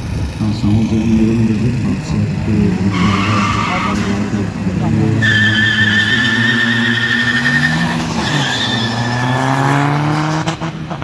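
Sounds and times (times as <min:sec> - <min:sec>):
car engines revving: 0:00.0 - 0:11.0
tyres squealing: 0:02.6 - 0:09.3.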